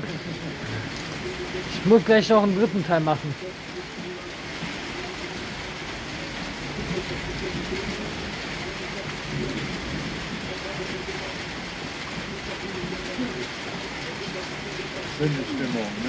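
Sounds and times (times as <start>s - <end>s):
steady rain falling: 0.0s - 16.0s
low rumble of thunder: 6.2s - 13.4s.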